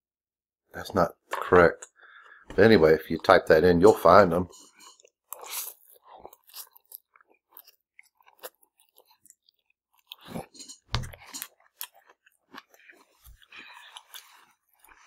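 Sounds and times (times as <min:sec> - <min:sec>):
people chewing noodles: 0:04.4 - 0:15.0.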